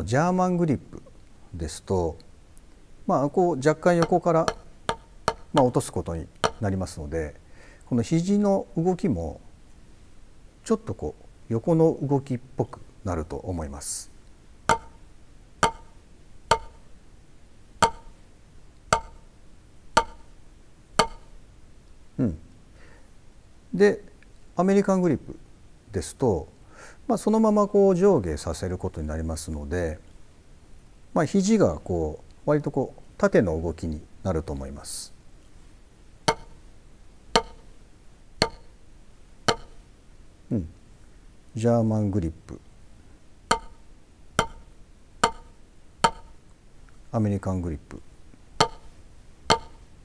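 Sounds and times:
drumsticks striking practice pad: 0:03.9 - 0:06.7, 0:14.7 - 0:16.9, 0:17.8 - 0:18.2, 0:18.9 - 0:19.3, 0:19.9 - 0:20.4, 0:21.0 - 0:21.4, 0:36.3 - 0:36.6, 0:37.3 - 0:37.8, 0:38.4 - 0:38.8, 0:39.5 - 0:39.8, 0:43.5 - 0:46.4, 0:48.6 - 0:49.9.

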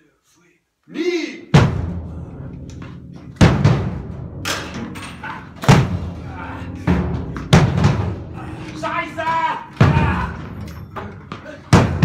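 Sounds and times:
balls hitting drums: 0:02.6 - 0:12.0.

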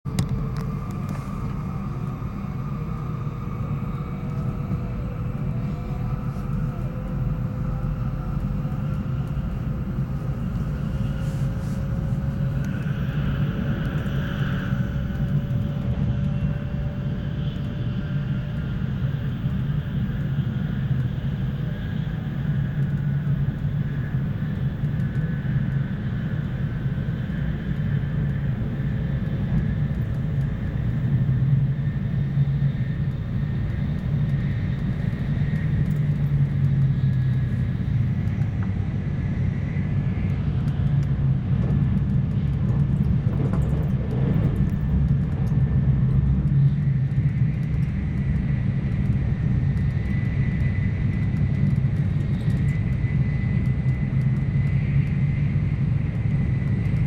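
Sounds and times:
train cabin rumble: 0:00.1 - 0:17.6, 0:27.4 - 0:47.8
faint rising whine: 0:00.1 - 0:22.7.

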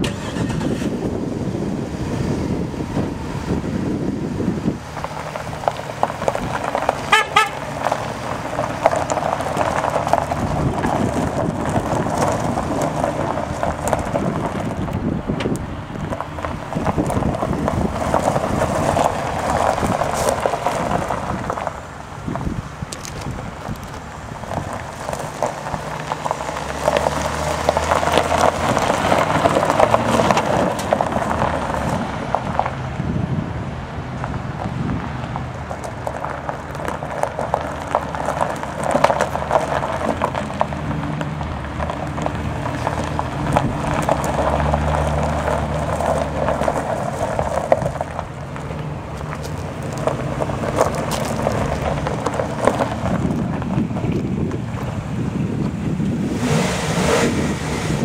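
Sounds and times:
truck engine running: 0:00.0 - 0:58.0
tyres on gravel: 0:00.0 - 0:58.0
horn toot: 0:07.0 - 0:07.7.

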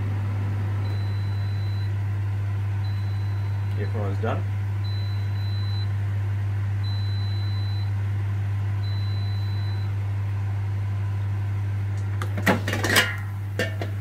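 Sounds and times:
air fryer beeping: 0:00.0 - 0:06.0, 0:06.8 - 0:08.0, 0:08.8 - 0:10.0
steady low hum: 0:00.0 - 0:14.0.

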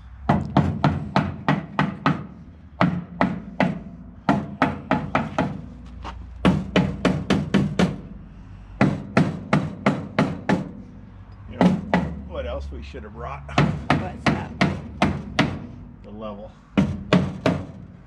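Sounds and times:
hammer striking wooden frame: 0:00.3 - 0:05.8, 0:06.4 - 0:08.1, 0:08.8 - 0:10.9, 0:11.6 - 0:12.2, 0:13.6 - 0:15.8, 0:16.8 - 0:17.9.

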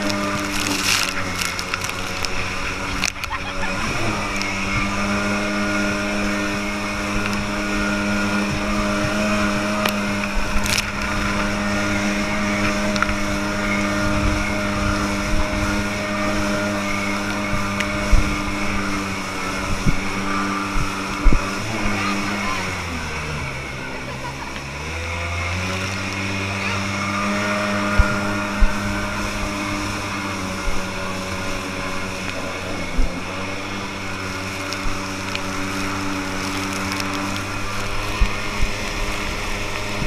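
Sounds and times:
jet boat engine at high revs: 0:00.0 - 0:40.0
water spray hissing: 0:00.0 - 0:40.0.

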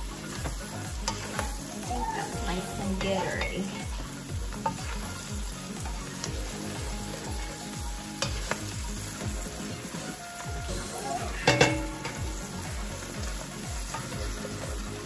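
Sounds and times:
shrimp sizzling in a pot: 0:00.0 - 0:15.0
spatula clicking and scraping pot: 0:01.0 - 0:01.6.

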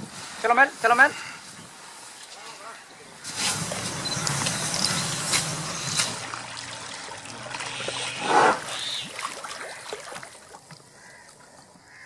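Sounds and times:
water sloshing and trickling: 0:01.4 - 0:11.9.

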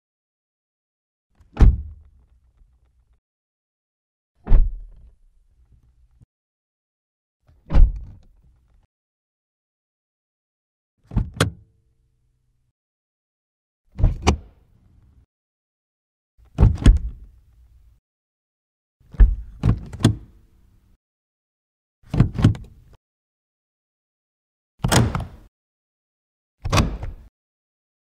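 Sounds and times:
car door thumping shut: 0:01.6 - 0:01.9
car door latch clicks: 0:24.8 - 0:25.4, 0:26.7 - 0:27.2.

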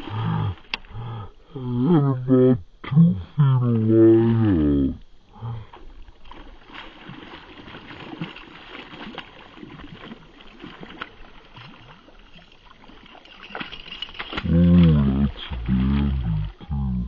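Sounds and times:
fish splashing at surface: 0:06.2 - 0:16.6.

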